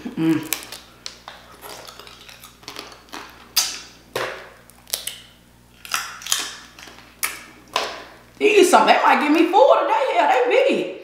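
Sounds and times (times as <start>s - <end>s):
sucking and chewing: 0.0s - 4.0s, 4.6s - 7.7s
crawfish shells cracking: 0.4s - 8.4s.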